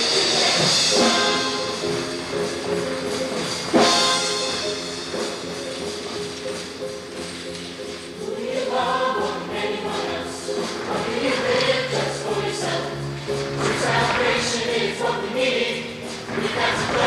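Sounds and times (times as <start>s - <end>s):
choir singing: 0.0s - 4.7s, 8.1s - 17.0s
instrumental accompaniment: 0.0s - 17.0s.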